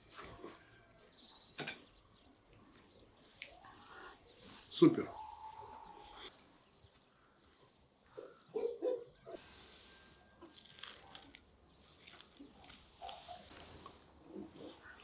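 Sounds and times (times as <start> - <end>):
meat tearing: 10.3 - 13.3
crispy skin crackling: 10.3 - 13.8.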